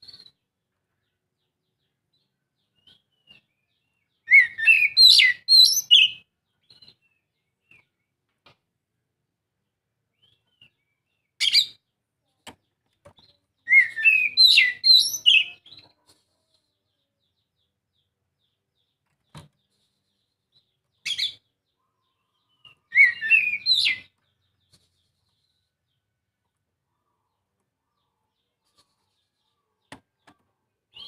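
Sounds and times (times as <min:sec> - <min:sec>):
bird singing whistled phrases: 0:04.2 - 0:06.2, 0:13.7 - 0:15.6, 0:22.9 - 0:24.1.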